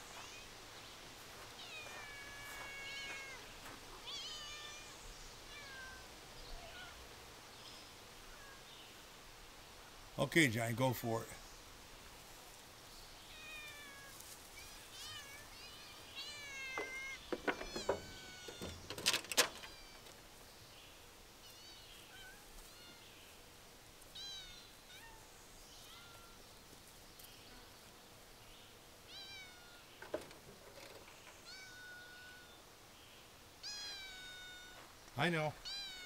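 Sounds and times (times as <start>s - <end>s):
cats meowing: 1.6s - 8.7s, 13.2s - 19.0s, 21.4s - 23.1s, 24.1s - 26.4s, 29.1s - 30.0s, 31.4s - 32.6s, 33.6s - 34.8s, 35.6s - 36.0s
sharp knocks and clatters: 16.8s - 19.7s.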